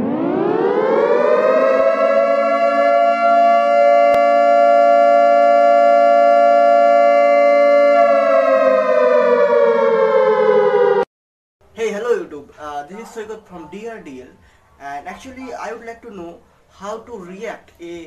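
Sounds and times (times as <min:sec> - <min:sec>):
air-raid siren wailing: 0:00.0 - 0:11.1.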